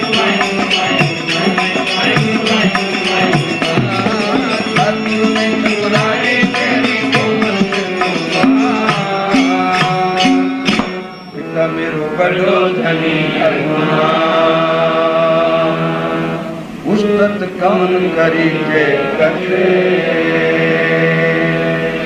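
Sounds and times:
musical accompaniment: 0.0 - 12.2
person singing devotional song: 0.0 - 22.0.

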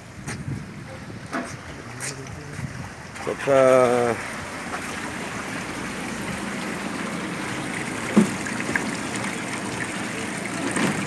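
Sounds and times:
water pouring into tank: 3.2 - 11.0.

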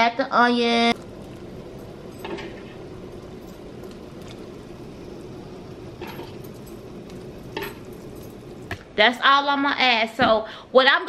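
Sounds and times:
pot of water boiling: 1.0 - 9.5.

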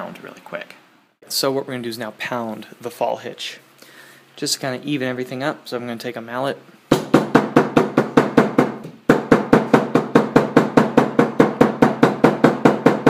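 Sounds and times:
mallet pounding on wooden tabletop: 6.9 - 13.0.

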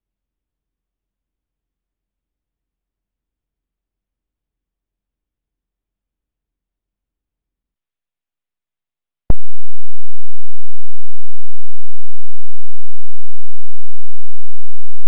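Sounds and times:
loud steady electronic tone: 9.3 - 15.0.

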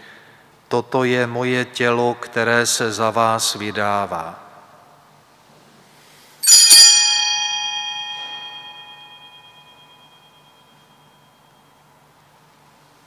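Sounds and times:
altar bells ringing: 6.4 - 12.0.

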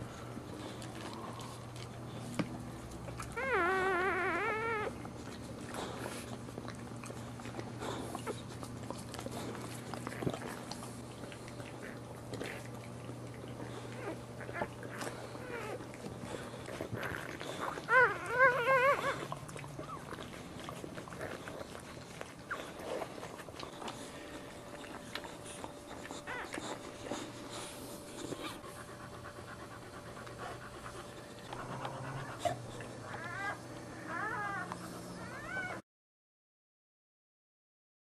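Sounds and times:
dog panting: 0.0 - 35.8
puppies squealing: 3.3 - 5.0, 13.9 - 15.8, 17.0 - 20.2, 25.6 - 27.4
dog licking: 4.7 - 33.2.

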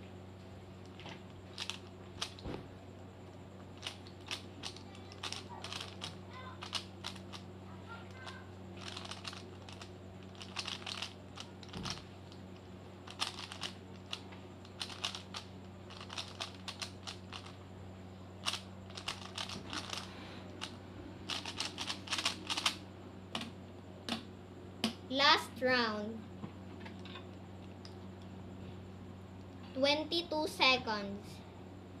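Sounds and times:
steady low hum: 0.0 - 32.0
plastic puzzle cube clicking: 3.8 - 7.3, 8.8 - 12.0, 13.1 - 14.2, 14.8 - 17.5, 18.4 - 20.7, 21.3 - 22.8.

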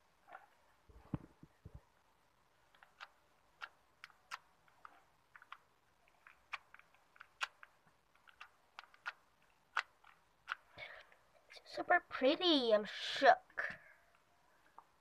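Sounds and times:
slime squishing with clicks and pops: 2.4 - 11.2.

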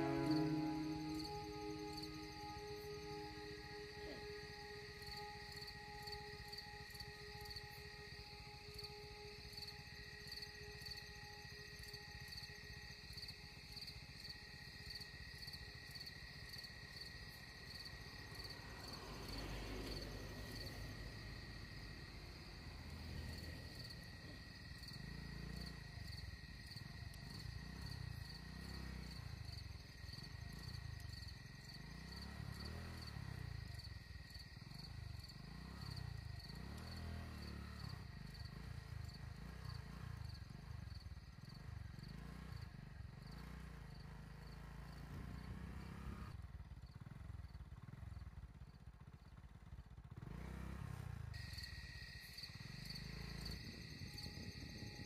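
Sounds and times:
lorry passing: 0.0 - 13.8, 17.9 - 26.9
insects chirping drone: 0.0 - 55.0.

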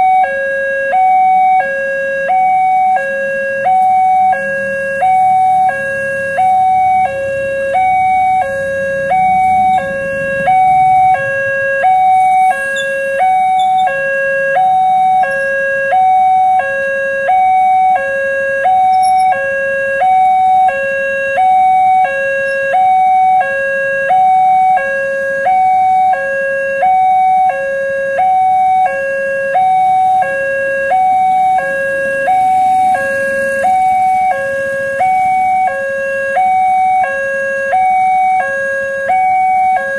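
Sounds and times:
two-tone level crossing siren: 0.0 - 39.9
faint motorcycle engines rumbling: 3.0 - 15.8, 18.6 - 23.1.

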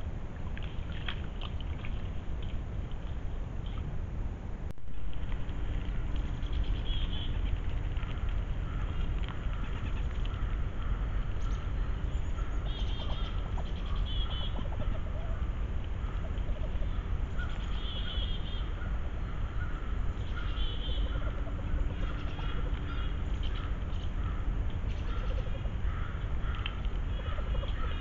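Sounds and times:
low rumble: 0.0 - 28.0
ducks calling: 5.8 - 28.0.

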